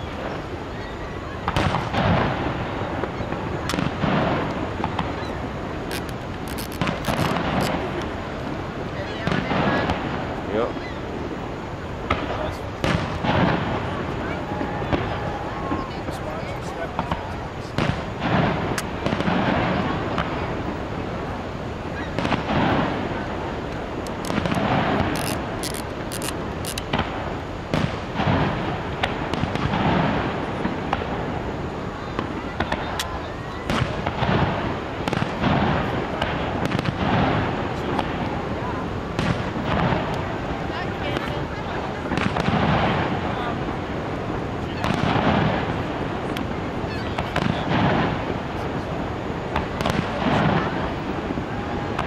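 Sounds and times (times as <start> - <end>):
steady background hiss: 0.0 - 52.0
sharp firework bang: 1.4 - 5.3, 12.0 - 16.2, 16.9 - 20.7, 22.0 - 23.2, 26.9 - 31.3, 32.1 - 38.4, 39.1 - 40.2, 44.8 - 45.8, 46.4 - 48.8
crackling pops: 1.4 - 8.5, 12.0 - 14.2, 14.9 - 20.8, 22.0 - 31.1, 32.2 - 38.2, 39.1 - 40.3, 42.1 - 43.6, 44.6 - 46.6, 49.5 - 52.0
fireworks shells bursting: 1.4 - 10.9, 22.0 - 31.2.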